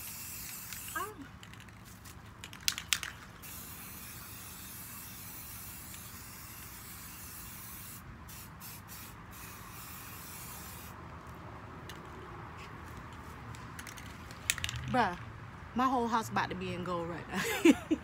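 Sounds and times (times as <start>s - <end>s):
spray paint can hissing: 0.0s - 11.0s.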